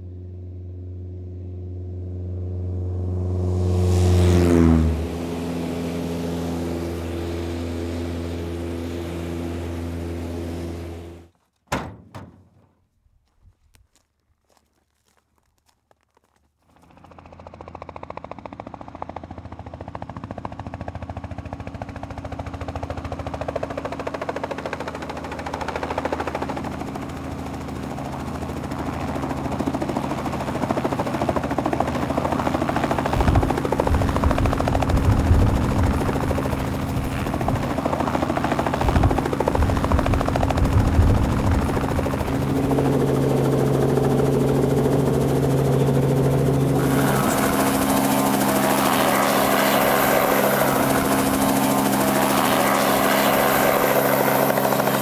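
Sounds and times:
helicopter running: 0.0s - 11.3s, 16.6s - 55.0s
low rumble gusts: 33.1s - 48.6s.

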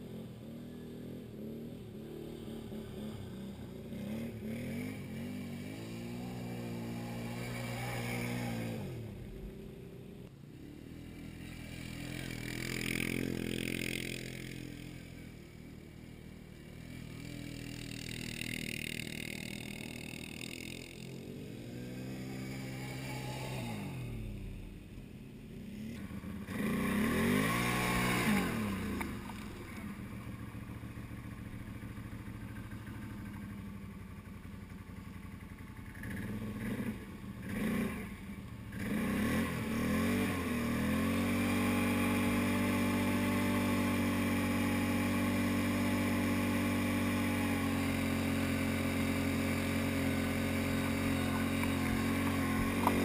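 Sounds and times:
atv engines revving: 0.0s - 53.0s.

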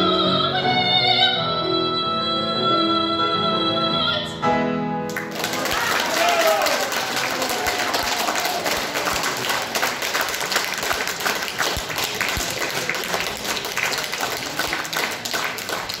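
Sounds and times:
audience applauding: 5.1s - 16.0s.

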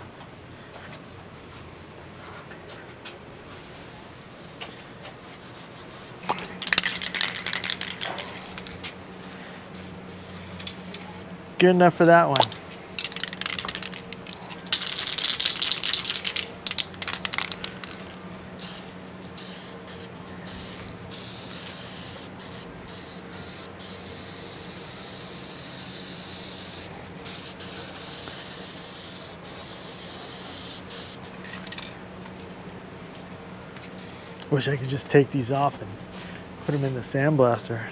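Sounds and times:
spray paint can hissing: 5.9s - 8.8s, 9.7s - 11.2s, 13.0s - 31.2s.

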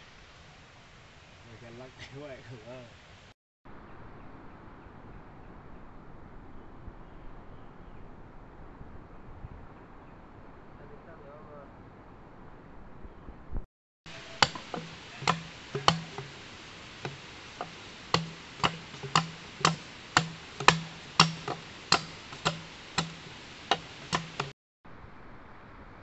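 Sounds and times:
sharp ticking clicks: 14.2s - 24.6s.

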